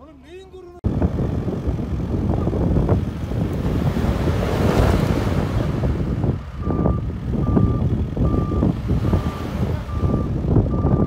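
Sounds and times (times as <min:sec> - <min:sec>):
off-road engine running hard: 0:00.8 - 0:11.0
tyres churning through snow: 0:00.9 - 0:11.0
reversing beeper beeps: 0:06.6 - 0:11.0.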